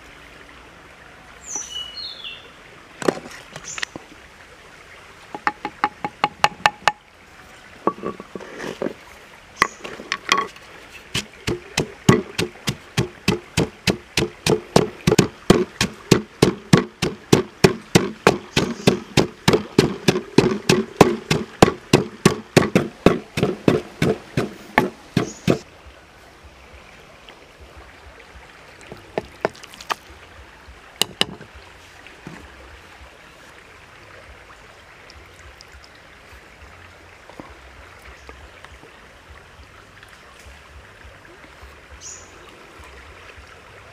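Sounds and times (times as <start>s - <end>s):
wooden knocks: 5.3s - 7.0s, 7.9s - 9.0s, 9.6s - 10.6s, 11.2s - 25.6s, 28.9s - 30.0s, 31.0s - 31.5s
pestle pounding in wooden mortar: 5.4s - 7.0s, 11.2s - 25.6s, 31.0s - 31.5s.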